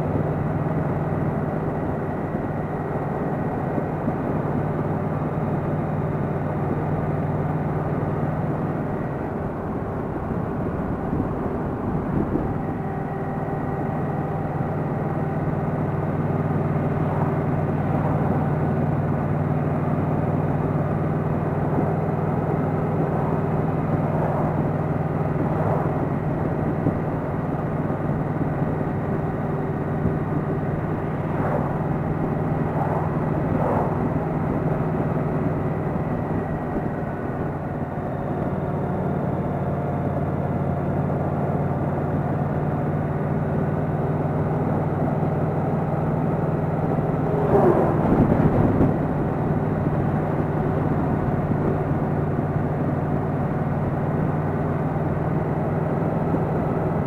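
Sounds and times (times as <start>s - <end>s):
wind and road noise: 0.0s - 57.0s
motorcycle engine cruising: 7.4s - 40.4s.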